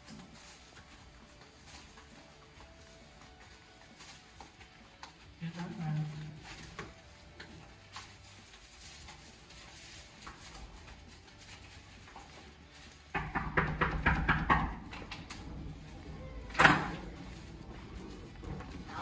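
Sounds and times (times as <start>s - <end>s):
knocking on wooden door: 13.1s - 15.0s.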